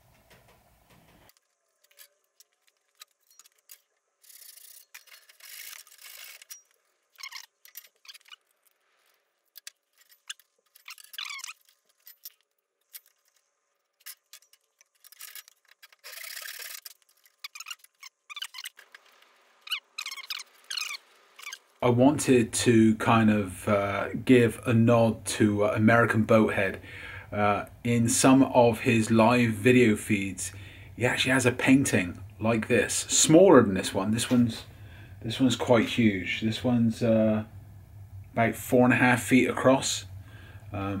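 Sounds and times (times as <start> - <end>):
wood squeaks: 1.4 - 21.8
wooden strips scraping wood: 13.4 - 21.7.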